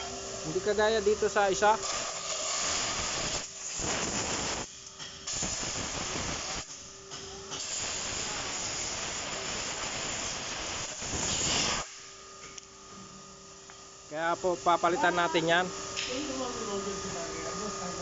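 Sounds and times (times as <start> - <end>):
compressed air blow gun hissing: 1.9 - 4.6, 5.3 - 6.7, 7.5 - 11.9.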